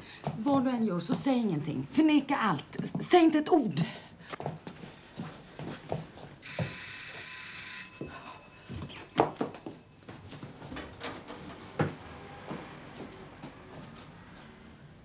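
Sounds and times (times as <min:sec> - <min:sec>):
electric doorbell ringing: 0:06.4 - 0:10.0.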